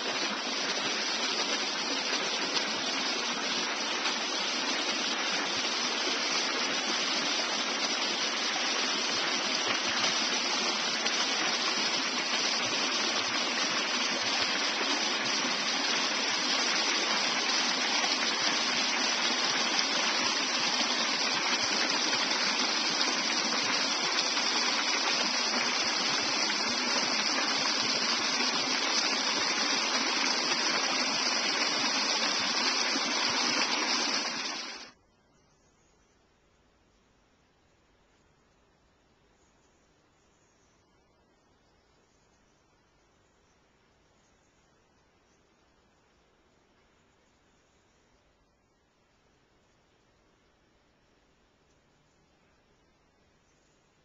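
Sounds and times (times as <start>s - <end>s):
creek rushing over rocks: 0.0s - 35.0s.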